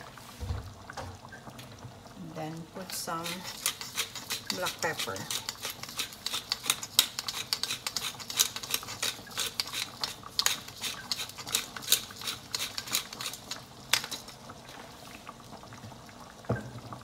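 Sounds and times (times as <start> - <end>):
pepper mill grinding clicks: 3.5 - 14.3.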